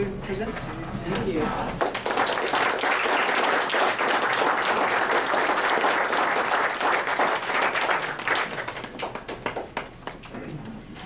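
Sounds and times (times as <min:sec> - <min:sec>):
audience applauding: 0:01.8 - 0:10.3.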